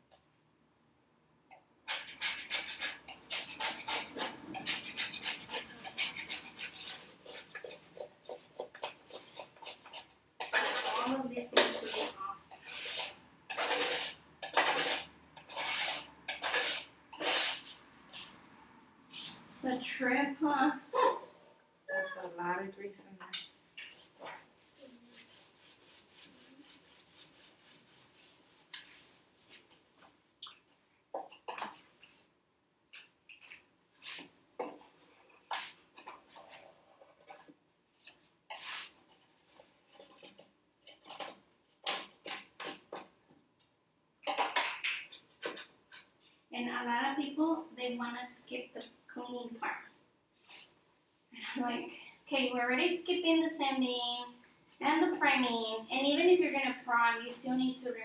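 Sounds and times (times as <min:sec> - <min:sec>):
scraper blade scraping wood: 0:01.9 - 0:17.8
brush scrubbing wooden door: 0:24.0 - 0:29.7.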